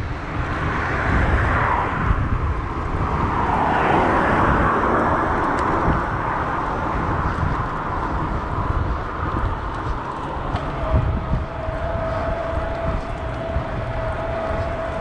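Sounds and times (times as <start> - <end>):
wind rumble on microphone: 0.0 - 15.0
car passing close by: 0.4 - 7.1.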